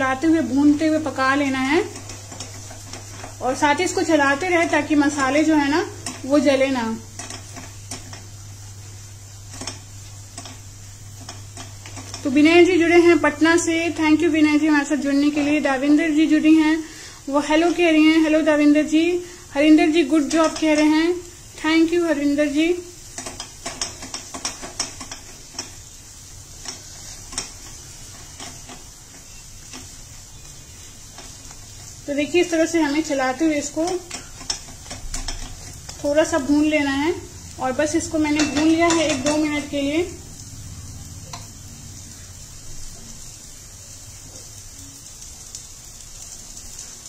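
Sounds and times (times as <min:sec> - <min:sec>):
light sizzle: 0:00.0 - 0:47.0
spatula scraping and tapping a pan: 0:00.2 - 0:08.4, 0:09.5 - 0:12.4, 0:19.9 - 0:21.2, 0:23.0 - 0:36.6, 0:37.9 - 0:39.8.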